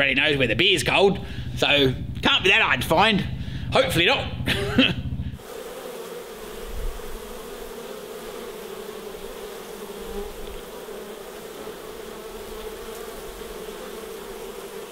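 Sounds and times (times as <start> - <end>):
bees buzzing: 4.0 - 14.9.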